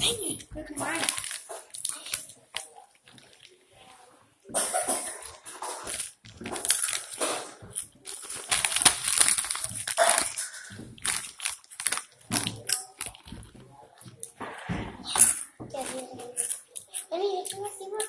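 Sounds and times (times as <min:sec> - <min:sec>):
plastic chip bag rustling: 0:00.1 - 0:03.6, 0:05.1 - 0:13.5.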